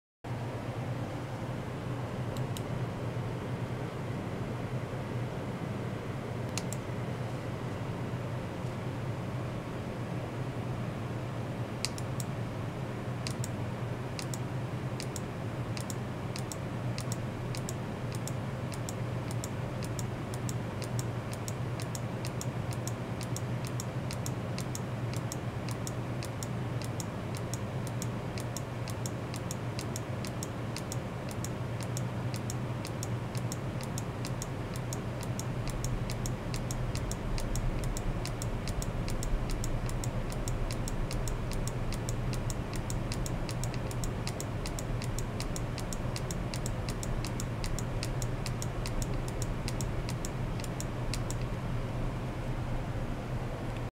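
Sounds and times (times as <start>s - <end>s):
steady low hum: 0.3s - 53.9s
rapid regular ticking: 15.8s - 51.5s.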